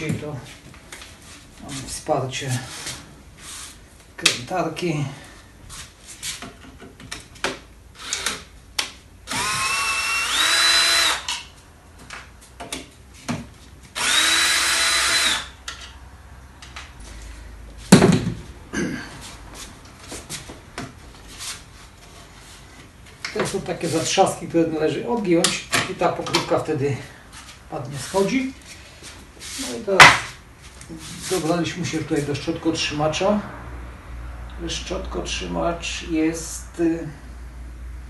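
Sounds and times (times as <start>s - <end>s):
clicks and knocks of handling parts: 6.4s - 9.0s, 15.6s - 16.0s
cordless screwdriver whining: 9.3s - 11.4s, 14.0s - 15.6s.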